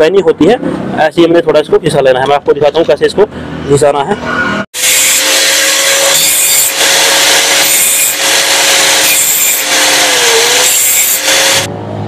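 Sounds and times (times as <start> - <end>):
angle grinder grinding steel: 4.8 - 11.7.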